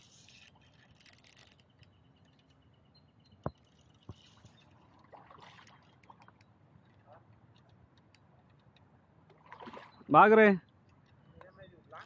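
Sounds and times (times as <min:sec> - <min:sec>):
fishing reel handling clicks: 0:00.1 - 0:02.0.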